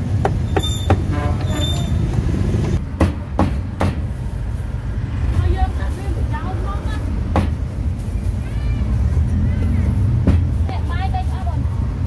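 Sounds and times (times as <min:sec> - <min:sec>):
sharp knocks: 0:02.9 - 0:04.1.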